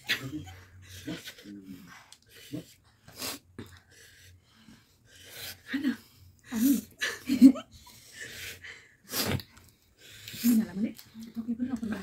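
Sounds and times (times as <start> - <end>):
voices and laughter: 0.0 - 1.8, 6.4 - 8.7
people hissing air through mouths: 3.0 - 3.5, 8.3 - 9.4.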